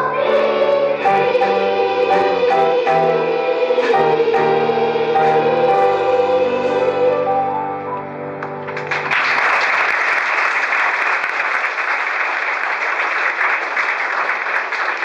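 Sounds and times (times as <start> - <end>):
singers holding a chord: 0.0 - 7.9
audience applauding: 8.4 - 15.0.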